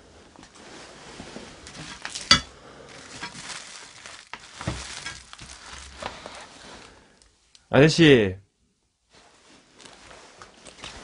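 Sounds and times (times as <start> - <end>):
rustling through debris: 0.6 - 7.0.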